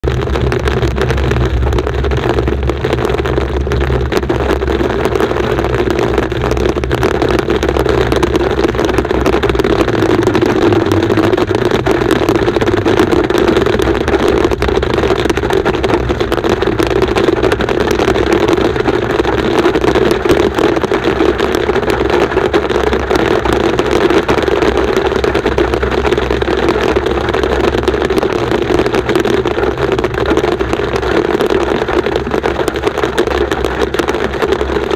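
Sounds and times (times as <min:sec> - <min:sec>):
car driving rumble: 0:00.0 - 0:34.9
hail pelting car roof: 0:00.0 - 0:34.9.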